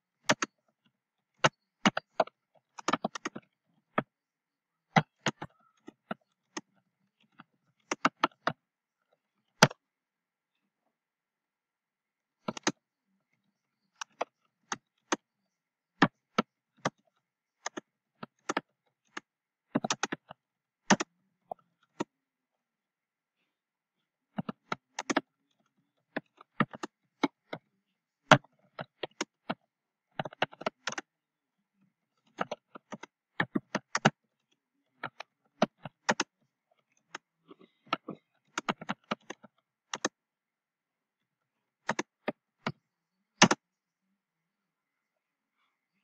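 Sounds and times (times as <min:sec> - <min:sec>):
computer keyboard typing: 0:00.2 - 0:00.6, 0:01.4 - 0:04.1, 0:07.8 - 0:08.6, 0:12.5 - 0:12.8, 0:17.6 - 0:21.1, 0:24.4 - 0:25.3, 0:26.1 - 0:27.6, 0:28.3 - 0:29.6, 0:30.2 - 0:31.1, 0:32.3 - 0:34.2, 0:35.0 - 0:36.4, 0:37.1 - 0:40.2, 0:41.8 - 0:42.8, 0:43.4 - 0:43.6.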